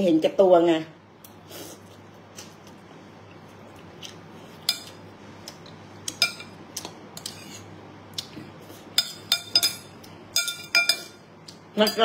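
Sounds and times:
cutlery clinking against bowl: 4.6 - 5.0, 6.1 - 7.6, 8.9 - 11.2.

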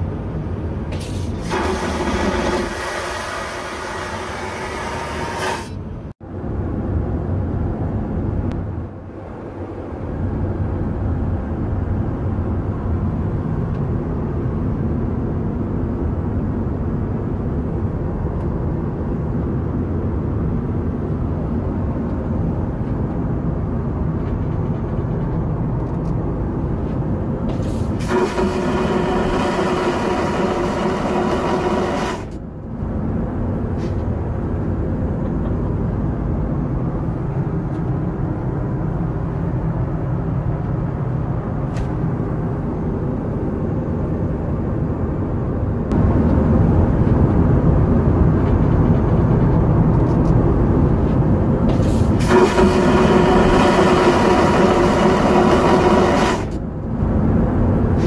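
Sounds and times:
low cabin drone: 0.0 - 58.0
vacuum toilet flushing: 1.4 - 5.6, 28.0 - 32.2, 52.2 - 56.5.

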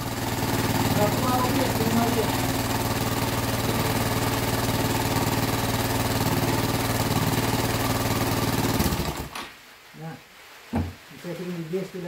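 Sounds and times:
atv engine idling: 0.0 - 9.3.

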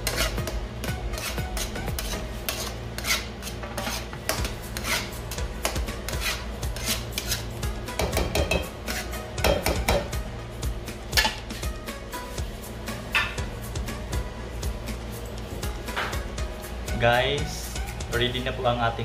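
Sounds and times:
spatula scraping a frying pan: 0.0 - 5.4, 6.0 - 7.6, 8.8 - 9.3.

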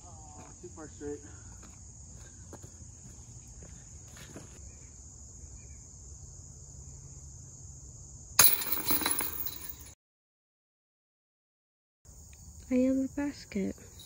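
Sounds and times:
insects chirring: 0.0 - 9.9, 12.1 - 14.0
metal chains rattling: 8.4 - 10.0.

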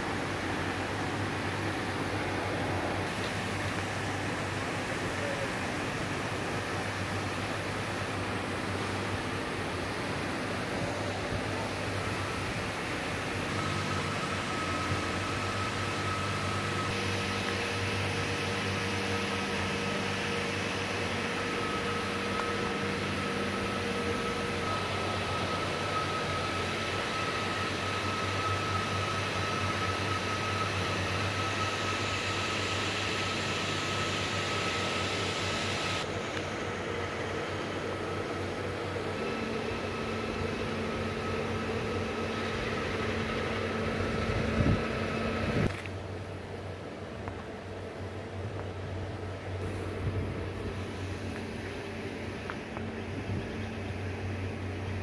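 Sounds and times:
machinery hum with high whine: 0.0 - 55.0.

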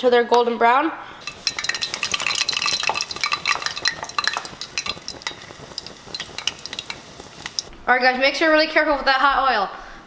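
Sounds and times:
fish frying in oil: 1.2 - 7.7.

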